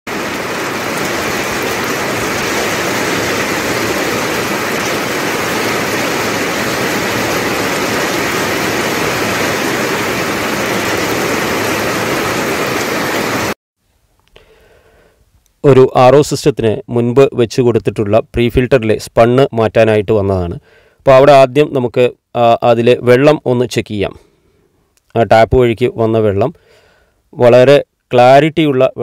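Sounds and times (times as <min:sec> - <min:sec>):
hiss of falling water: 0:00.1 - 0:13.6.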